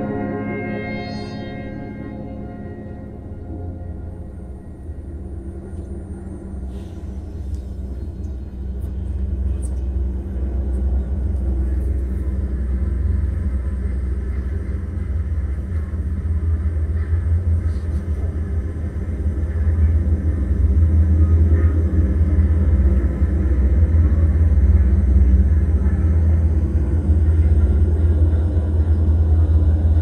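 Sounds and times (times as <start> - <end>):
steady held tones: 0.0 - 8.0
low rumbling drone: 0.0 - 30.0.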